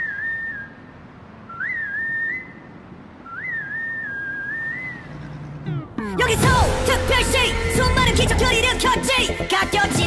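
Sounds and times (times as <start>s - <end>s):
person whistling: 0.0s - 0.8s, 1.5s - 5.1s.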